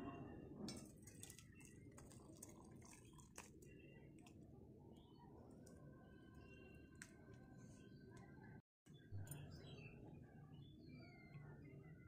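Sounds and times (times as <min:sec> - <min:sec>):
curry pouring onto plate: 0:00.8 - 0:04.3.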